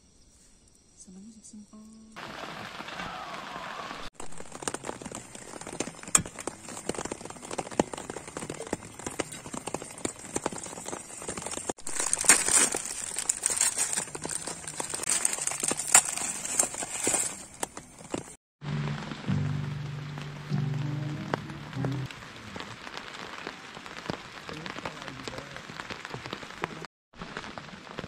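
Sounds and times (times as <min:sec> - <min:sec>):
plastic packet crinkling: 0:04.2 - 0:18.3.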